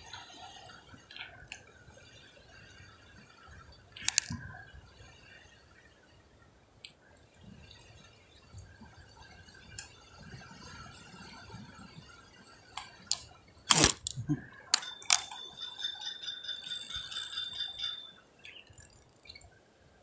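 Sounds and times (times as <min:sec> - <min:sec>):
fishing reel clicks and knocks: 0:04.0 - 0:04.4, 0:14.8 - 0:15.8
fishing reel winding whir: 0:14.8 - 0:19.4.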